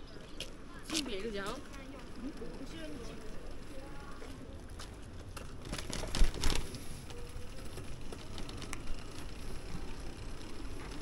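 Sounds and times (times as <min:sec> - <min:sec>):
wind and riding noise: 0:00.0 - 0:11.0
bicycle knocks and rattles: 0:05.2 - 0:06.8.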